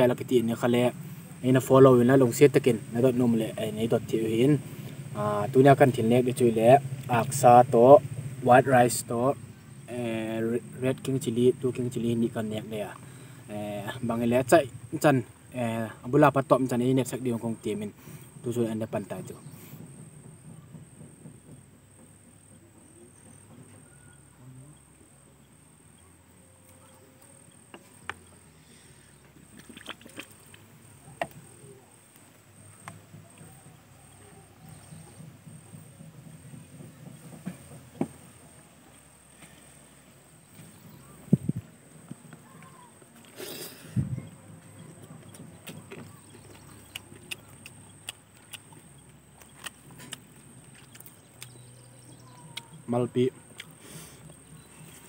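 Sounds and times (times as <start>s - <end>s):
mouth and hand noises: 26.6s - 39.6s, 40.4s - 55.0s
dull bump: 32.6s - 38.5s
chewing mouth clicks and smacks: 45.3s - 51.6s.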